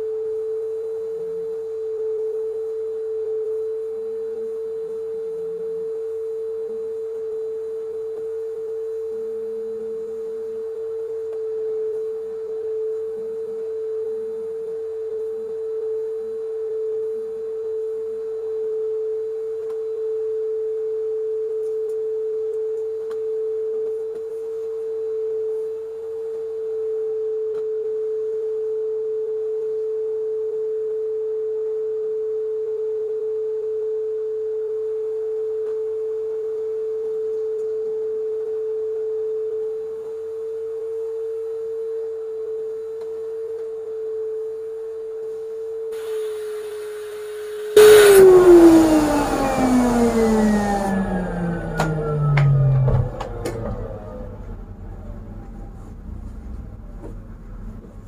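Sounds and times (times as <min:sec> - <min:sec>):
vacuum cleaner motor humming: 0:45.9 - 0:58.0.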